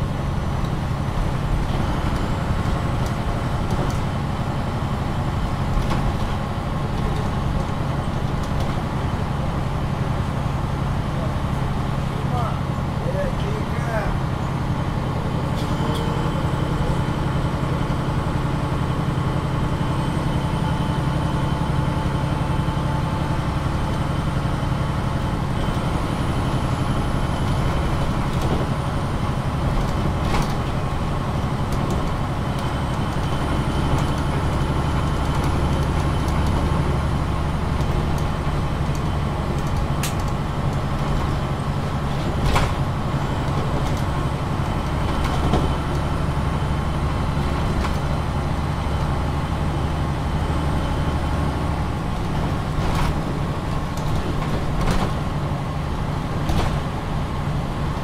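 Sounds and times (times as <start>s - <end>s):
bus engine drone: 0.0s - 58.0s.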